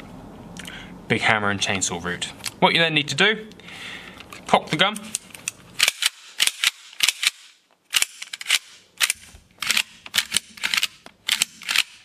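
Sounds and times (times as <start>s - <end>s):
rifle bolt clicking and clacking: 5.0s - 12.0s.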